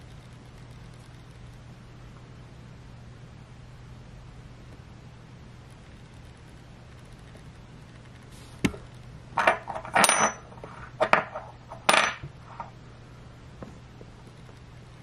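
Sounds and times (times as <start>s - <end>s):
metal coin clinking on table: 9.4s - 12.3s.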